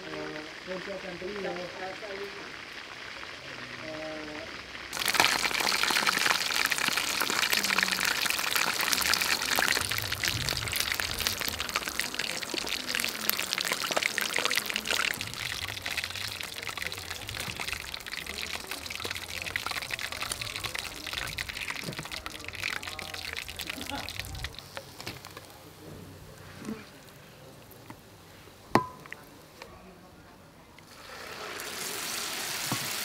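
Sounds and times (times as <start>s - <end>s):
chicken deep-frying in oil: 0.0s - 29.6s, 30.8s - 33.0s.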